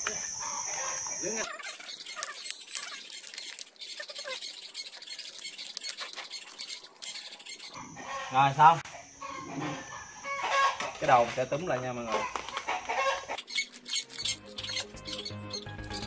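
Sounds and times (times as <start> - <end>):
banana leaves rustling and crackling: 1.4 - 7.7.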